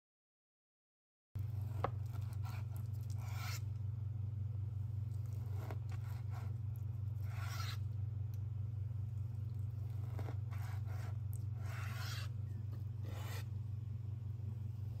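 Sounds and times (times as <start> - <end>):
steady low hum: 1.4 - 15.0
knife slicing fish: 7.2 - 7.9, 9.9 - 12.4.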